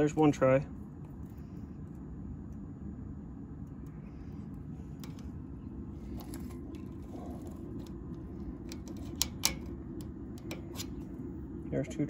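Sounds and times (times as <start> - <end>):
metallic clicks of wire mesh: 8.6 - 11.0.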